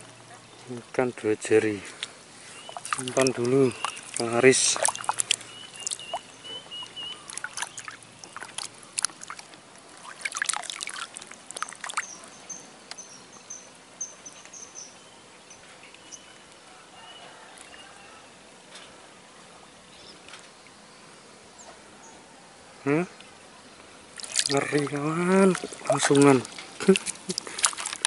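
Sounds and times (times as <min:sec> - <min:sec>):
water splashes and drips: 0:02.0 - 0:12.3, 0:24.1 - 0:28.0.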